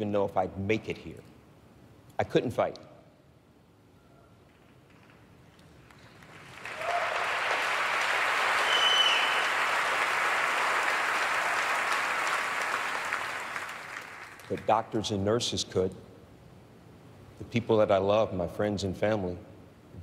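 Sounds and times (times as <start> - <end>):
audience applause: 5.9 - 14.7.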